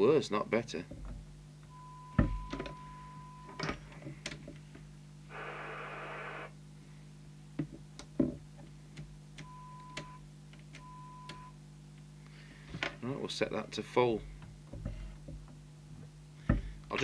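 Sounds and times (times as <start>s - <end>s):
steady low hum: 0.0s - 17.0s
radio squelch hiss: 5.3s - 6.6s.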